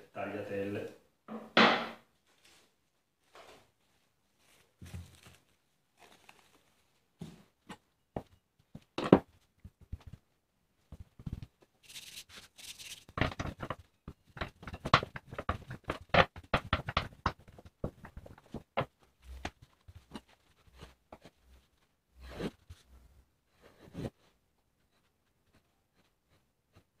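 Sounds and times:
rolling pin knocking and rattling: 0:13.1 - 0:20.2
dough thumping on wooden board: 0:14.3 - 0:18.9.

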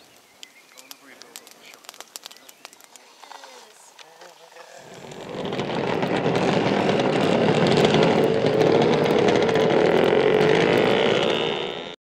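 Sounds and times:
dense crackle: 0:00.0 - 0:12.0
loud engine-like running sound: 0:04.8 - 0:12.0.

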